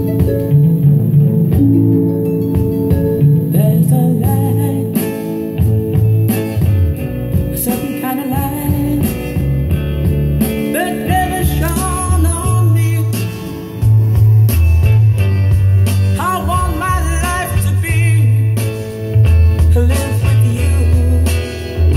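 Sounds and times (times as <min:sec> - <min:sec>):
guitar pop music over loudspeakers: 0:00.0 - 0:21.9.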